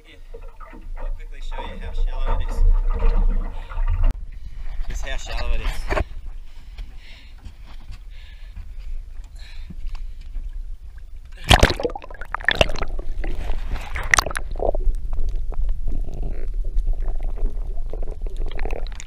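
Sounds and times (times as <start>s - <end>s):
muffled gurgling water: 0.0s - 7.2s, 8.0s - 19.0s
low rumble: 10.0s - 19.0s
camera splashing into sea: 11.4s - 14.6s.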